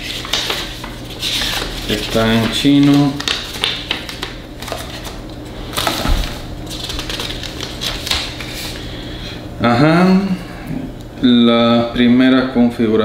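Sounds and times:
paper rustling and crinkling: 0.0s - 8.9s.

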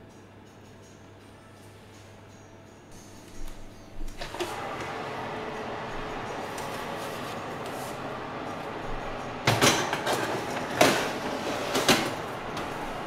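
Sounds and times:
metal baking tray scraping on oven rails: 9.4s - 13.0s.

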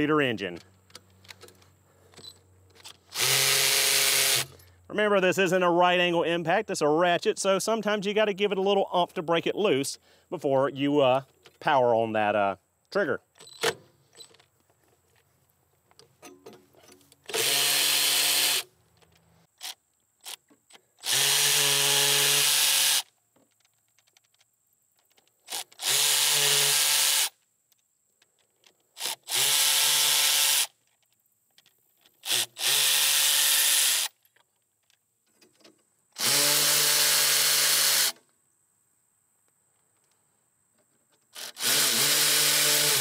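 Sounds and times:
cordless ratchet running: 41.4s - 43.0s.

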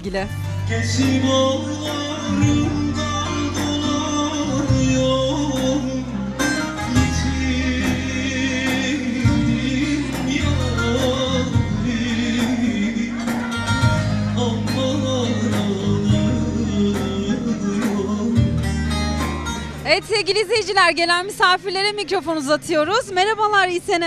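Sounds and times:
live band with keyboards and guitar: 0.0s - 24.0s
man singing with vibrato: 0.4s - 19.6s.

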